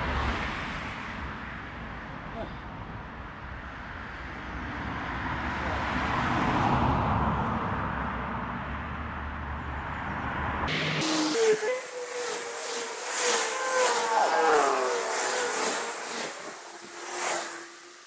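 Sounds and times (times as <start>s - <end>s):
road vehicle passing: 9.8s - 18.0s.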